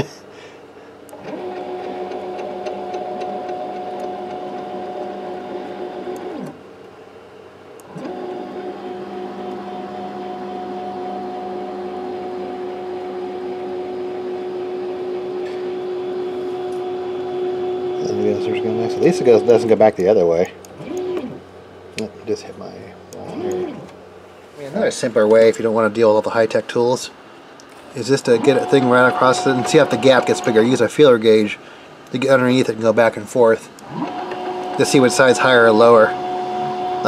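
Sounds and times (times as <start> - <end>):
stepper motors whining: 1.1 - 6.6, 7.8 - 21.5, 23.1 - 24.0, 27.9 - 31.0, 33.8 - 37.0.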